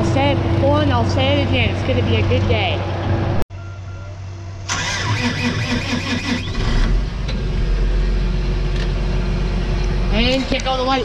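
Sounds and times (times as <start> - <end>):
diesel engine cranking: 4.6 - 11.0
diesel engine idling: 6.2 - 11.0.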